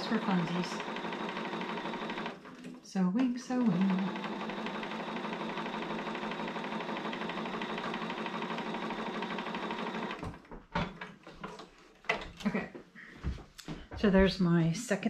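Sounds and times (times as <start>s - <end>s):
sewing machine stitching: 0.0s - 10.5s.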